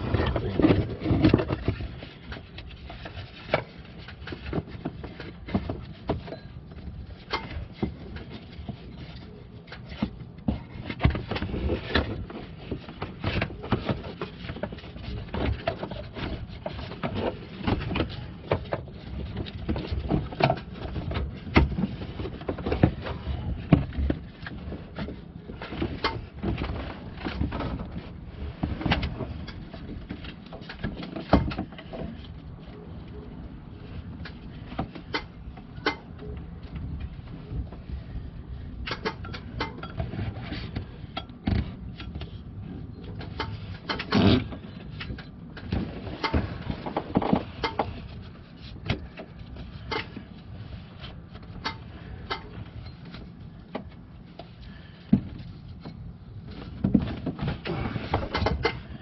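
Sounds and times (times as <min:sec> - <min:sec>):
rubber belt knocking and scraping: 0:00.0 - 0:59.0.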